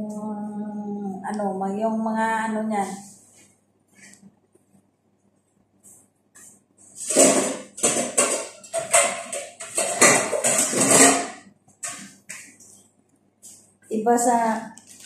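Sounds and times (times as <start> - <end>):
steel bowl clattering: 7.0 - 12.5
food packaging rustling: 14.7 - 15.0.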